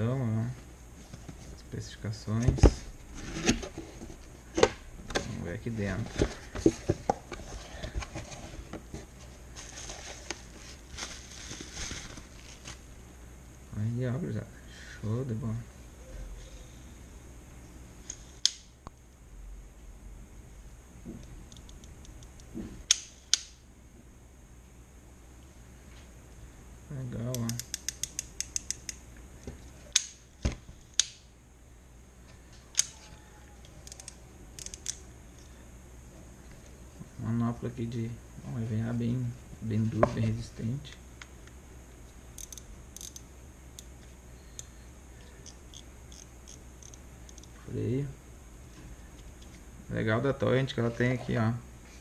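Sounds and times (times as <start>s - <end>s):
plastic wrapping crinkling: 9.5s - 12.8s.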